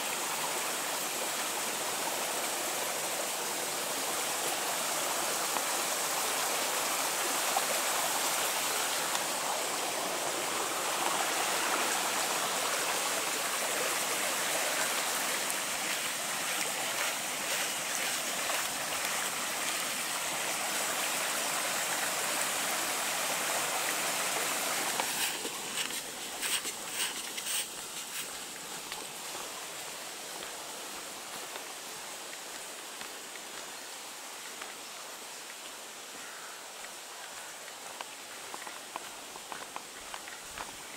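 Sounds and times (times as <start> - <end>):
brook water rushing over rocks: 0.0 - 40.9
footsteps on leaf-covered path: 14.8 - 19.6, 24.6 - 29.4.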